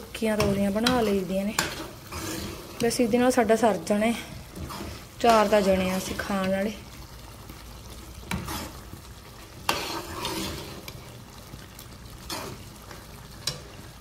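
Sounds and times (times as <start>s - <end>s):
faint sizzle of cooking: 0.0s - 14.0s
metal ladle scraping a pan: 0.3s - 3.1s, 4.6s - 6.5s, 8.2s - 8.9s, 9.6s - 11.1s, 12.2s - 13.8s.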